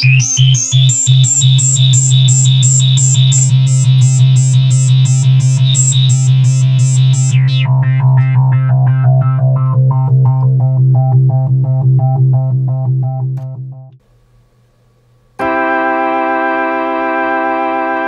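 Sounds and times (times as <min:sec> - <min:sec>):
resonant filter sweep: 0:00.0 - 0:13.9
steady low synth tone: 0:00.0 - 0:14.0
synthesizer pulsed note: 0:00.0 - 0:14.0.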